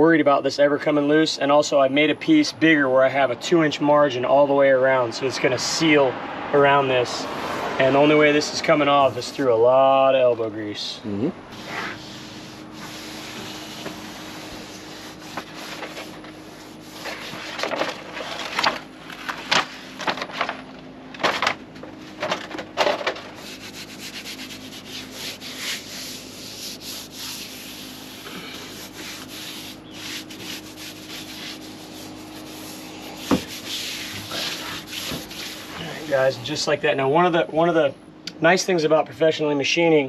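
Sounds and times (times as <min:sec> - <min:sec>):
hands rubbing foam pad: 0:11.5 - 0:20.0, 0:23.3 - 0:36.4.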